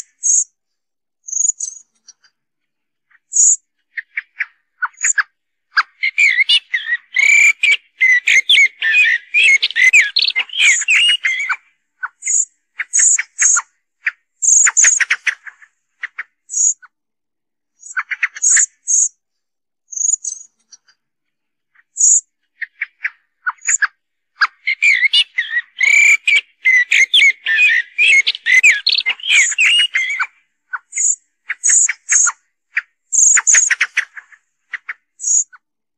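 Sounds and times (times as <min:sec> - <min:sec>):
blackbird song: 0:00.0 - 0:00.5, 0:01.2 - 0:02.4, 0:03.0 - 0:16.9, 0:17.7 - 0:19.2, 0:19.9 - 0:21.0, 0:21.6 - 0:35.6
bird chak calls: 0:03.1 - 0:16.9, 0:17.8 - 0:19.1, 0:21.8 - 0:35.6.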